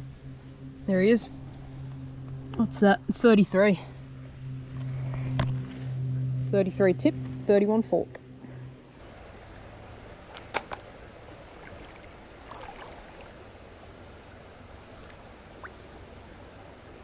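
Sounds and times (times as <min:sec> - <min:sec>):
creek water trickling: 0:09.0 - 0:17.0.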